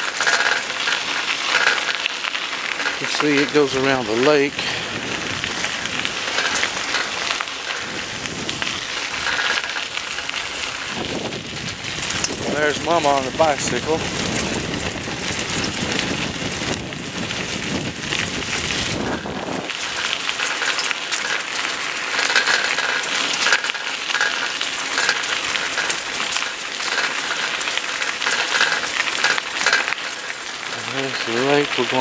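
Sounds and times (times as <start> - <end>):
bicycle tyres crunching on gravel: 0.0 - 32.0
wind rumbling on microphone: 2.9 - 27.6.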